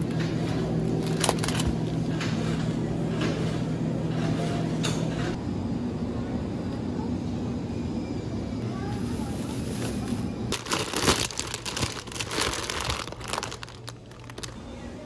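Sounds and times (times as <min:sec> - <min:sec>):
refrigerated display case hum: 0:00.0 - 0:15.0
plastic wrap crinkling: 0:10.5 - 0:14.6.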